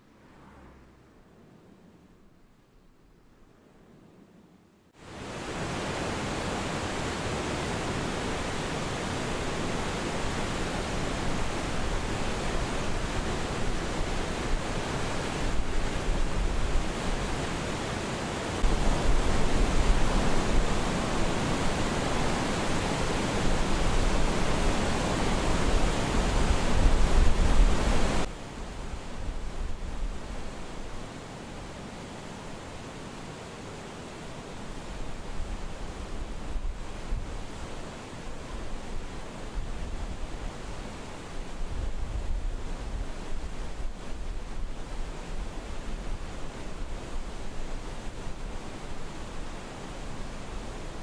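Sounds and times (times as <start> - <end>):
steady rushing noise: 0.0 - 31.7.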